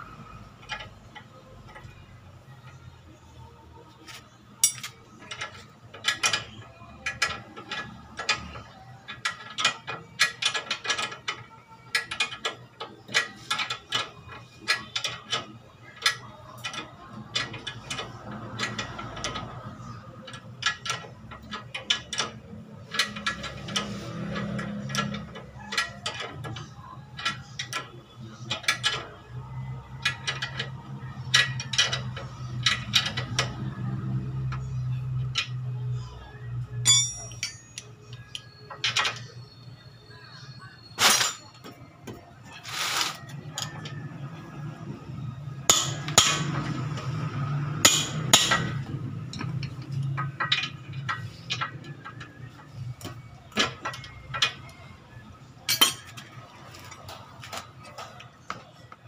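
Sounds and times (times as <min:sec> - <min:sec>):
ratchet wrench clicking: 0:04.6 - 0:08.5, 0:45.7 - 0:46.8, 0:47.8 - 0:53.0.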